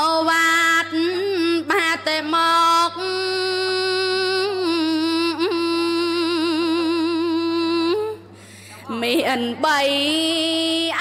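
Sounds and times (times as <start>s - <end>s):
woman chanting: 0.0s - 11.0s.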